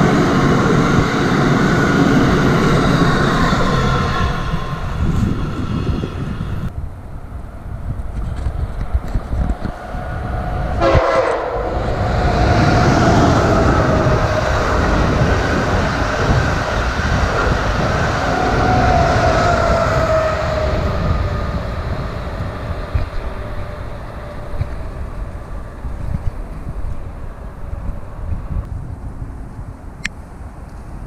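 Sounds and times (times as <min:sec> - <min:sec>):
high-speed train passing: 0:00.0 - 0:31.0
train whine falling in pitch: 0:09.7 - 0:25.3.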